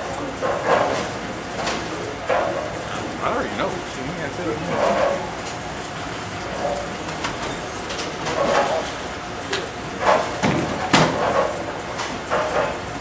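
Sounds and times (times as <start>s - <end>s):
distant voices: 0.0s - 7.7s
bowling balls and pins clattering: 6.5s - 12.9s.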